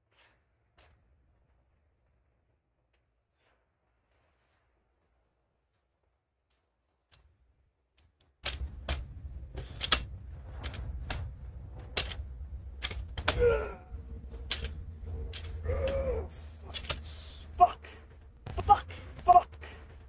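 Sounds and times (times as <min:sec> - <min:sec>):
low rumble: 0:08.5 - 0:20.0
metal hand truck rattling: 0:08.5 - 0:20.0
man grunting: 0:13.3 - 0:14.0, 0:15.6 - 0:19.8.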